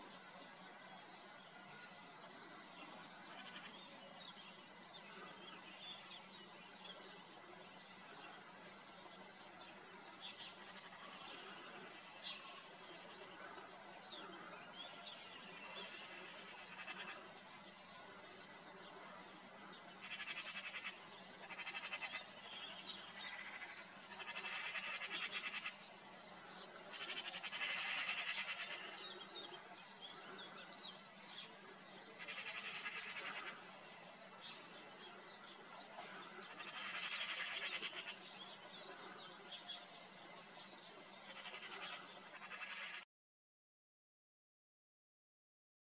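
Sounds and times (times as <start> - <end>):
small songbirds chirping: 0.0 - 43.0
magpies chattering: 20.0 - 25.8, 26.9 - 29.4, 32.1 - 34.1, 35.9 - 39.6, 41.3 - 43.0.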